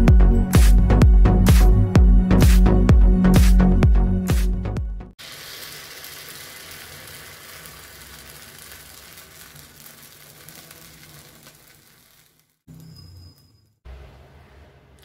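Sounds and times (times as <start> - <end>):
electronic music: 0.0 - 5.1
batter sizzling in oil: 5.2 - 13.6.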